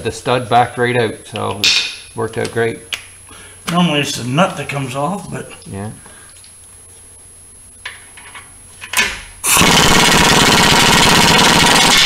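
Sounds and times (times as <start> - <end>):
air hammer hammering rapidly: 9.4 - 12.0.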